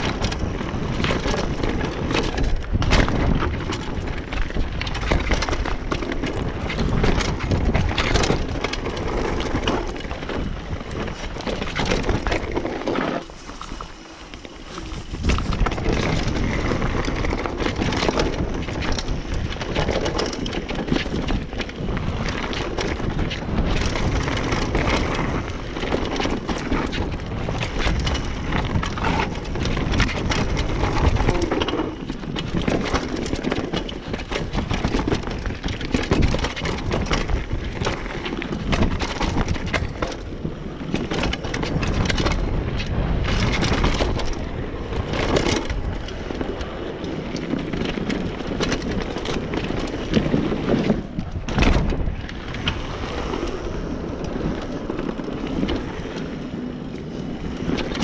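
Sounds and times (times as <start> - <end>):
tyres crunching over stones: 0.0 - 25.4
bike rattling over bumps: 0.0 - 58.0.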